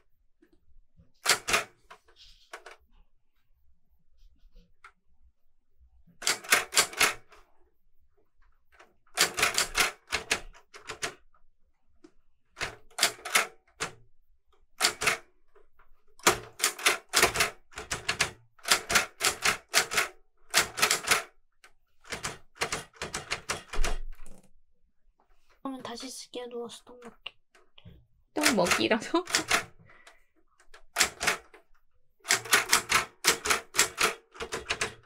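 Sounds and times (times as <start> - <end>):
typewriter keys clicking: 1.2 - 1.8, 6.2 - 7.4, 9.1 - 11.2, 12.6 - 14.0, 14.8 - 15.3, 16.2 - 21.3, 22.0 - 24.5, 28.4 - 29.8, 30.6 - 31.6, 32.2 - 35.0.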